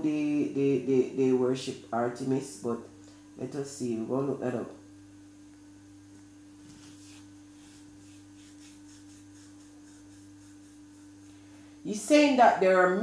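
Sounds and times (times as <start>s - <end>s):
faint steady hum: 0.0s - 13.0s
rubbing and handling noises: 6.2s - 11.4s.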